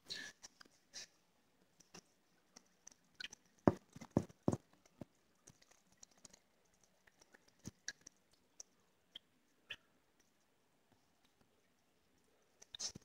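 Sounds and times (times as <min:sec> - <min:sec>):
knocks: 0:03.7 - 0:04.6.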